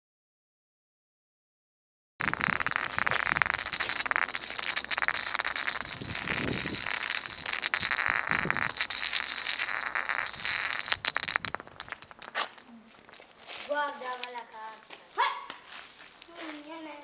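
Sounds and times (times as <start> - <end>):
ceramic cup spinning on stone: 2.2 - 13.2.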